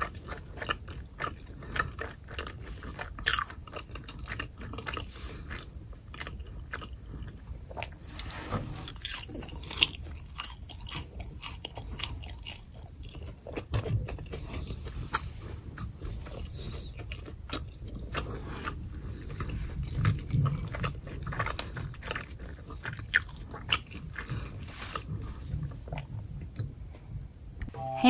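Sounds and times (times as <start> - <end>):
crispy pancake crunching: 0.0 - 26.6
soft chewing thumps: 0.0 - 27.8.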